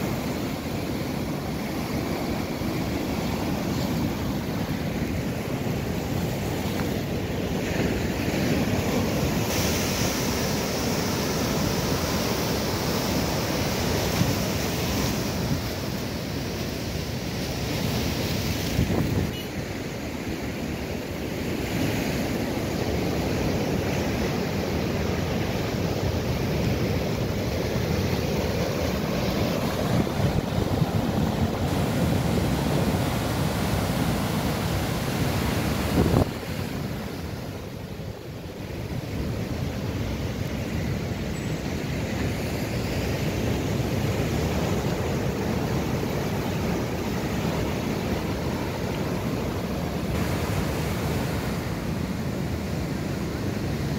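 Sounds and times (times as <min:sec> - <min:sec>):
storm surf breaking on shore: 0:00.0 - 0:53.9
wind on microphone: 0:17.9 - 0:19.6, 0:28.9 - 0:37.8.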